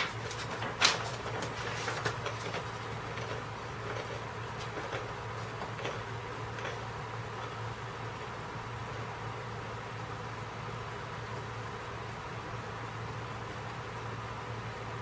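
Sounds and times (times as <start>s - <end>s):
handling rustles and clicks: 0.0s - 6.9s.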